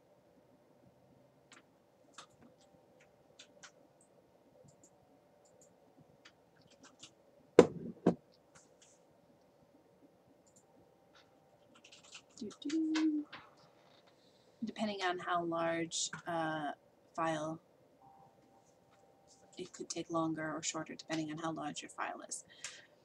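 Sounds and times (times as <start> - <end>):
low steady hum: 0.0 - 23.0
faint clicks and scratches: 1.5 - 7.2, 10.4 - 14.3.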